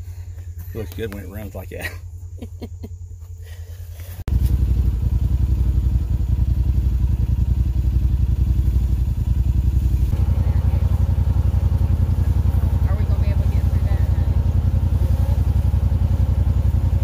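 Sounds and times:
utility vehicle engine idling: 0.0 - 17.0.

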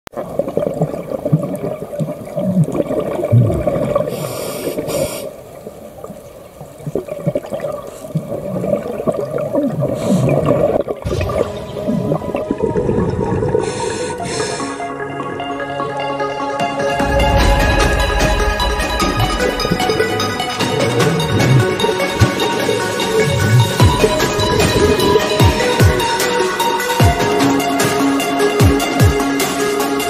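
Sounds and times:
underwater bubbling and rumbling: 0.1 - 29.4
diver's regulator breaths: 4.1 - 5.4, 13.5 - 14.9.

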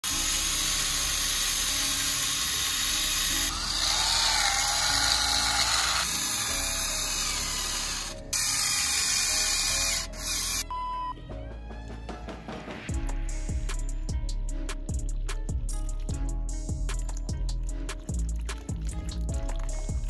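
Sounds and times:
small electric motors whirring: 0.0 - 10.6.

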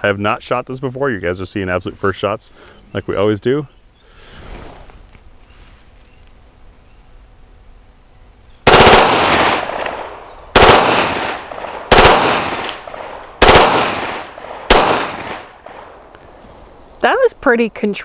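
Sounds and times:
pistol firing bursts: 8.6 - 16.0
gunshot echo: 8.7 - 16.0.

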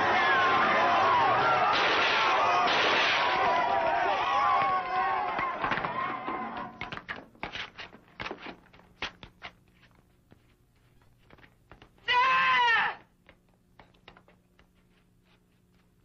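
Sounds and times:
faint knocks and shuffles: 7.2 - 12.1, 13.1 - 16.0.

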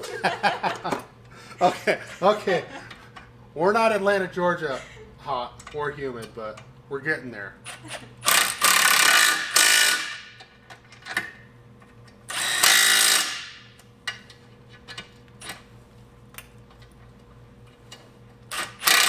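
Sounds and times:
impact wrench hammering bolts: 8.2 - 11.4, 12.3 - 14.3, 17.9 - 19.0.

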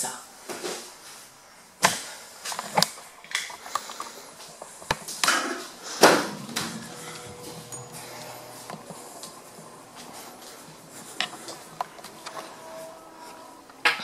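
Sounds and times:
door opening: 5.9 - 14.0.

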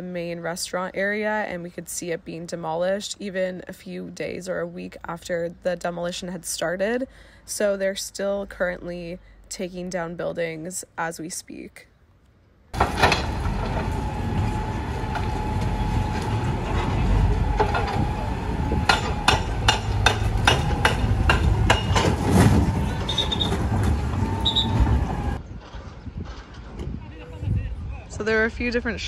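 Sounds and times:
excavator rumbling and whining: 12.8 - 25.4.

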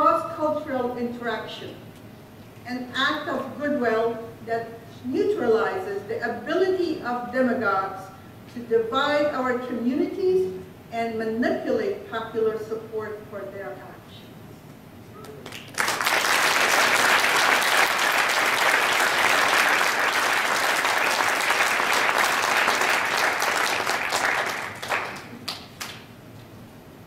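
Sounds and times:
audience applauding: 15.4 - 26.1.

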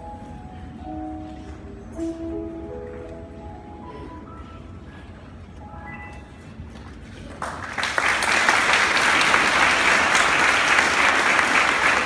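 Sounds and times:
audience applause: 7.2 - 12.0.

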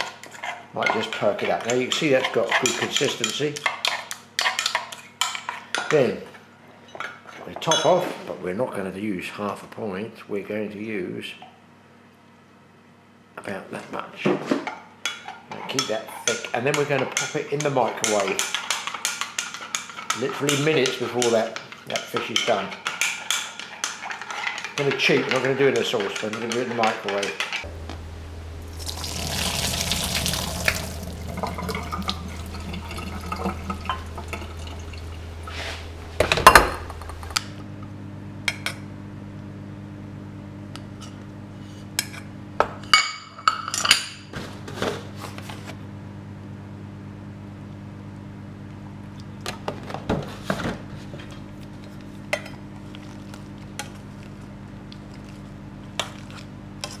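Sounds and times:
steady low hum: 27.5 - 42.7
water poured into metal colander: 28.7 - 35.6
pans and utensils clinking: 28.8 - 37.4.

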